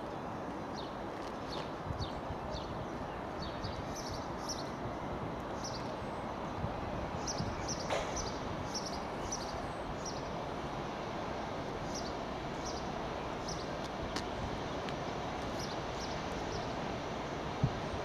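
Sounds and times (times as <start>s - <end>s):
steady outdoor rumble: 0.0s - 18.0s
small birds chirping: 0.1s - 4.8s, 5.6s - 6.3s, 7.2s - 10.4s, 11.8s - 16.8s.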